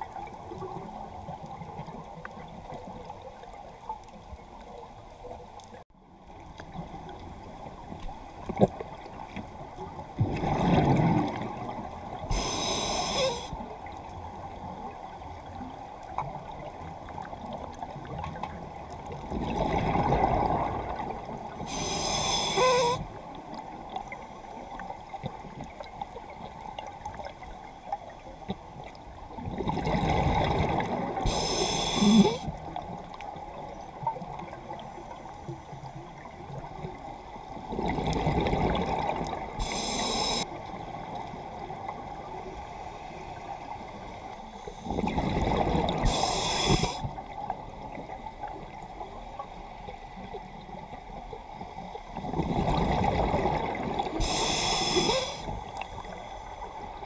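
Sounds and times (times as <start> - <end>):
underwater water noise: 0.0 - 57.0
regulator hiss: 12.3 - 13.6, 21.6 - 23.0, 31.3 - 32.5, 39.6 - 40.4, 46.0 - 47.1, 54.2 - 55.6.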